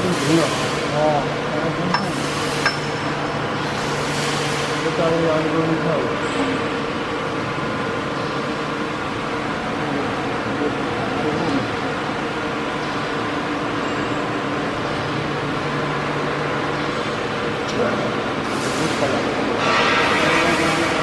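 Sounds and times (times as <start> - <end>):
wire mesh weaving machine running: 17.8 - 21.0.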